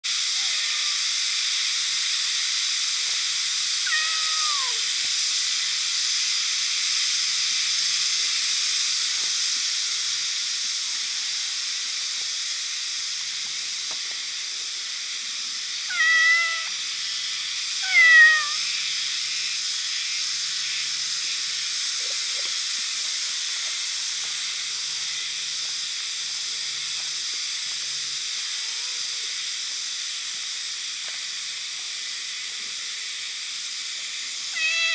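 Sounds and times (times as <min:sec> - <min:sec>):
high hiss: 0:00.0 - 0:34.9
cat meowing: 0:00.4 - 0:01.0, 0:03.8 - 0:04.9, 0:15.9 - 0:16.8, 0:17.8 - 0:18.6, 0:34.5 - 0:34.9.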